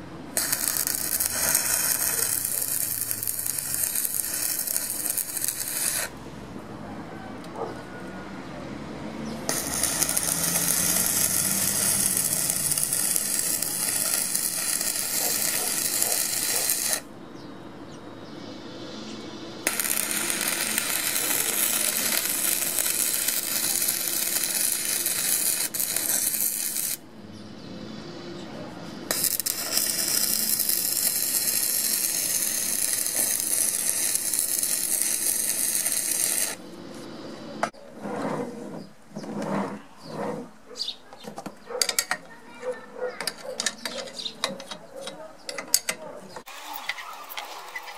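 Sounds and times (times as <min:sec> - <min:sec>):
welding arc crackling: 0:00.3 - 0:06.2, 0:09.4 - 0:17.1, 0:19.6 - 0:27.0, 0:29.1 - 0:36.6, 0:46.5 - 0:47.9.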